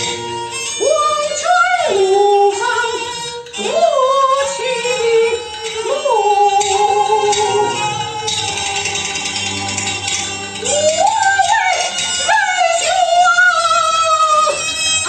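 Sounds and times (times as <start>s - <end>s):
instrumental music: 0.0s - 15.0s
woman singing: 0.8s - 9.4s, 10.6s - 14.8s.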